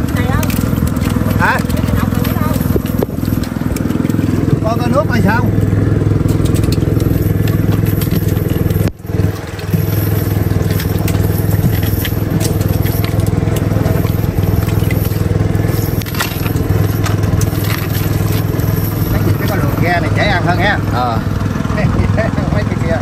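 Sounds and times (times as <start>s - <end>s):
boat engine droning: 0.0s - 23.0s
crackling clicks: 5.5s - 19.6s.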